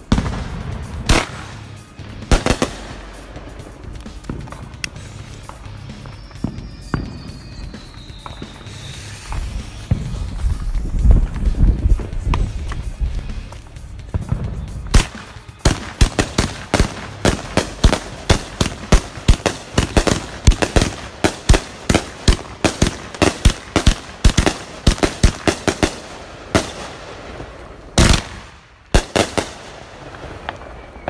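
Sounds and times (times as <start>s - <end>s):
firework cake shots and bangs: 0.0s - 3.2s, 14.0s - 27.2s, 28.0s - 29.8s
long firework blast: 0.0s - 31.0s.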